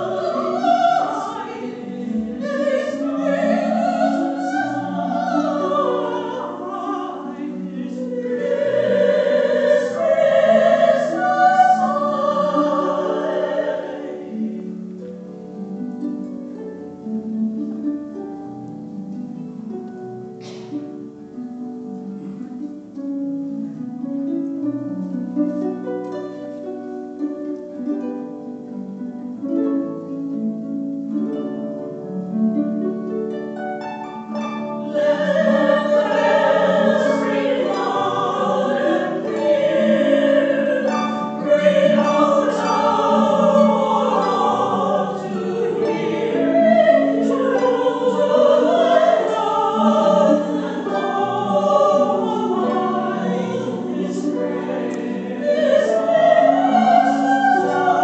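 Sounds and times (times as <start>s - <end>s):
women singing a carol: 0.0s - 15.0s, 34.3s - 58.0s
harp playing: 0.0s - 58.0s.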